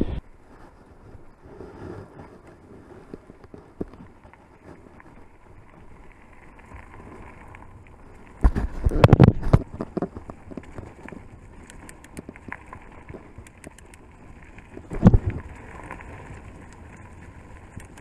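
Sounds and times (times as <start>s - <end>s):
bike tyre running noise: 0.0s - 18.0s.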